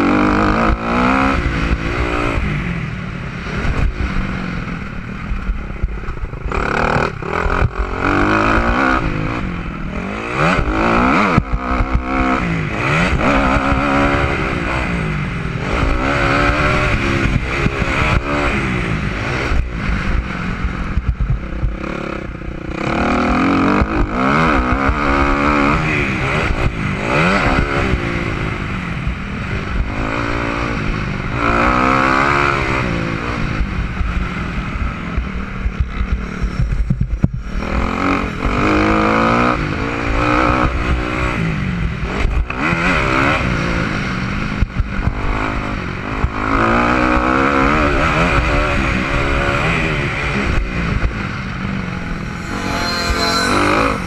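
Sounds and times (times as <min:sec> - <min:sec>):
dirt bike engine revving: 0:00.0 - 0:02.7, 0:06.3 - 0:20.8, 0:21.5 - 0:28.6, 0:45.2 - 0:54.0.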